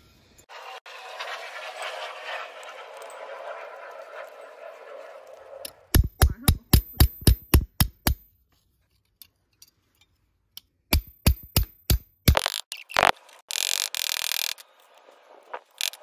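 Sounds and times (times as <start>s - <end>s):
small hammer tapping copper: 6.0s - 8.3s.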